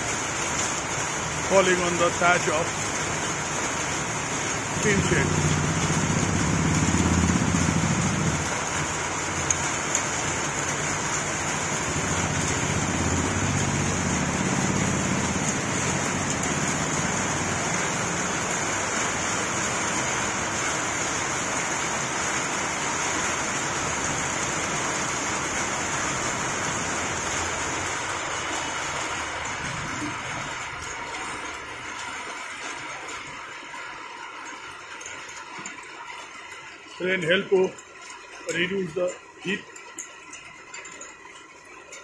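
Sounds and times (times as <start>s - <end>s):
steady rain hiss: 0.0s - 41.4s
rain drumming on a tin roof: 0.0s - 42.0s
rain splashing on a wet floor: 0.0s - 42.0s.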